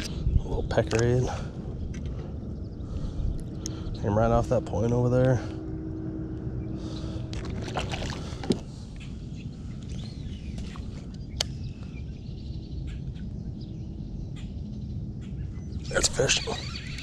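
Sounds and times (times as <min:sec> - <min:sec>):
wind rumble on microphone: 0:00.0 - 0:17.0
fishing rod and reel clicks: 0:15.9 - 0:17.0.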